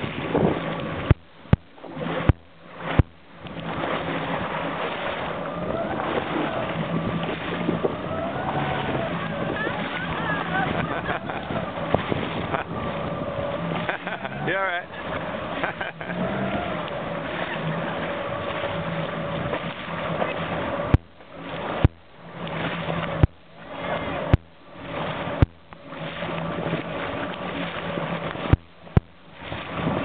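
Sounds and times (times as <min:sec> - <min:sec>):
boat motor running: 0:00.0 - 0:30.0
wind and water rushing: 0:00.0 - 0:30.0.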